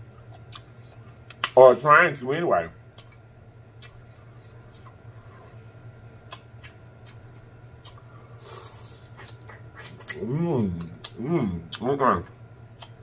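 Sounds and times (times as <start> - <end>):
mouth clicks and smacks: 1.3 - 1.6, 6.2 - 7.2, 7.8 - 8.1, 12.7 - 13.0.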